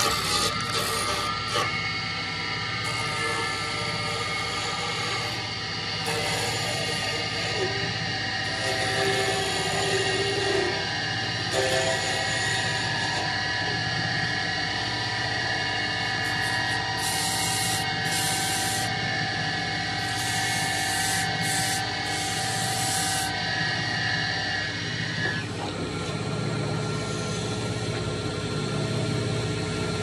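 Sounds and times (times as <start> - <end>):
lathe motor hum and whine: 0.0 - 30.0
sandpaper hissing on spinning wood: 16.3 - 18.9, 20.1 - 23.3.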